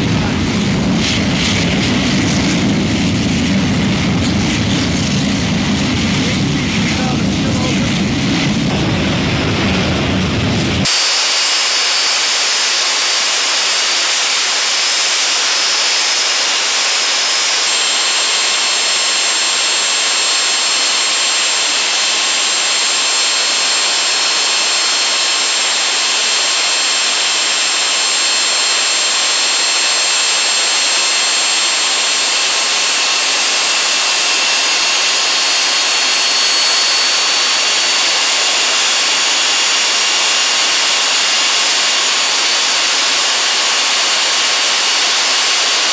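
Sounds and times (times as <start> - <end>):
gas turbine rushing and whining: 0.0 - 45.9.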